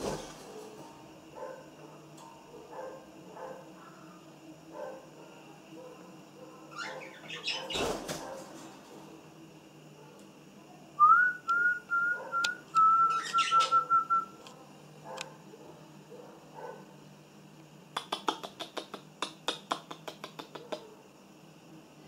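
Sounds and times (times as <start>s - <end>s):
budgerigar chatter: 6.1s - 8.0s, 13.2s - 13.8s
budgerigar whistling: 12.4s - 14.1s
beak clicks: 17.9s - 20.9s.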